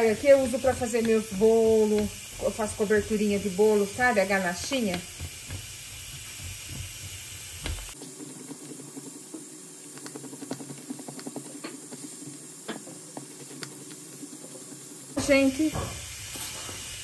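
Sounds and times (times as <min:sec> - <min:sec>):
chocolate being grated: 0:00.0 - 0:09.1.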